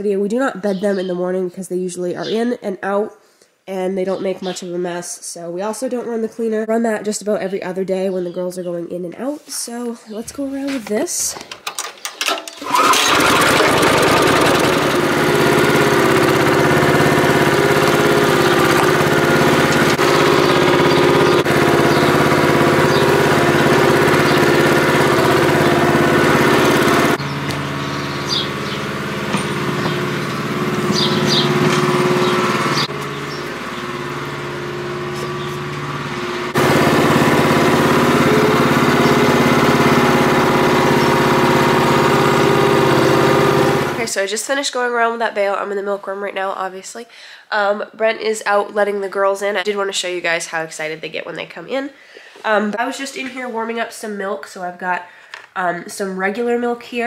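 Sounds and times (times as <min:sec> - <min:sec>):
small gas engine running: 0:12.6 - 0:44.1.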